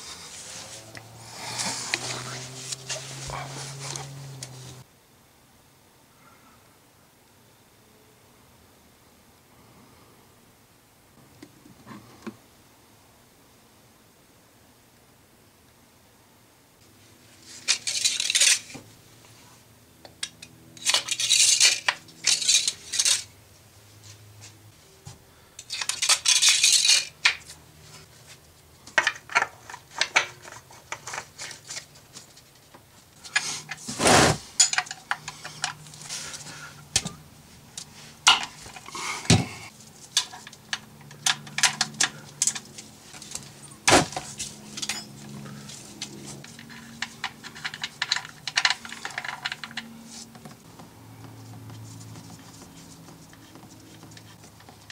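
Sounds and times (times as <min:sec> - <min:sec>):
rustling: 0:00.0 - 0:04.8
metal tools clinking: 0:17.6 - 0:18.8, 0:20.2 - 0:23.3, 0:25.6 - 0:27.4, 0:34.6 - 0:35.8, 0:40.1 - 0:45.4, 0:46.0 - 0:49.9.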